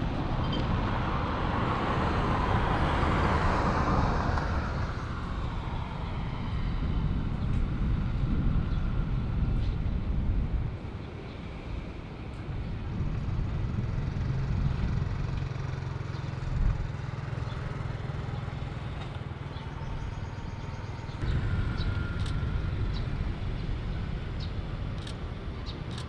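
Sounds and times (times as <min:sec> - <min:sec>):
jet engine whine: 0:00.0 - 0:15.0, 0:19.7 - 0:26.0
jet engines rumbling: 0:00.0 - 0:15.3, 0:21.1 - 0:26.0.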